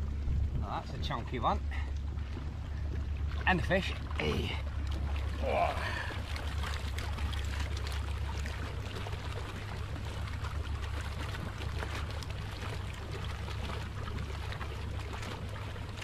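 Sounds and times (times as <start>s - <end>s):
low rumble: 0.0s - 8.8s
water splashing and pouring: 3.3s - 16.0s.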